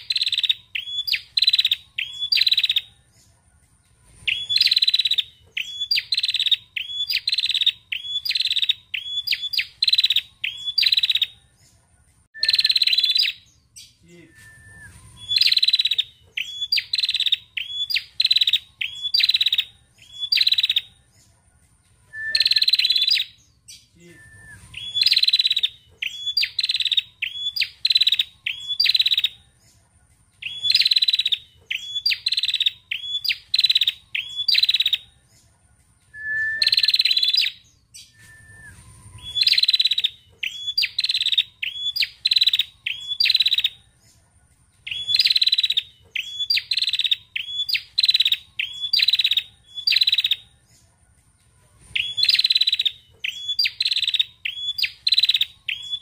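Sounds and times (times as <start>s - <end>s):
bird chirping: 0.0s - 56.0s.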